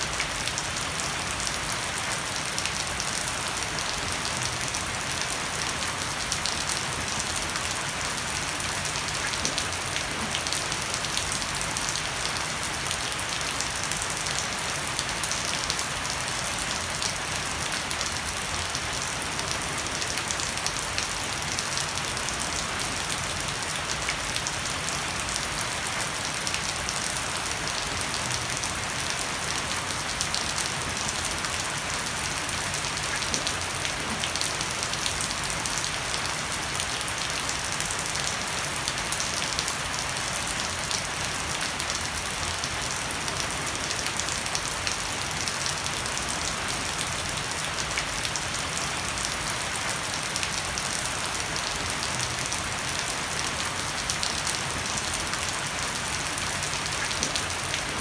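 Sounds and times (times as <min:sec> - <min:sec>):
heavy rain on deck and foliage: 0:00.0 - 0:58.0.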